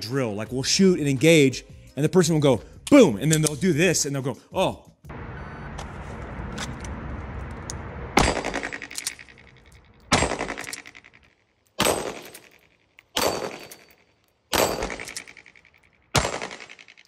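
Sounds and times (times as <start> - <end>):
pistol shots with ringing echo: 8.2 - 9.3, 10.1 - 11.0, 11.8 - 12.5, 13.2 - 15.5, 16.1 - 16.9.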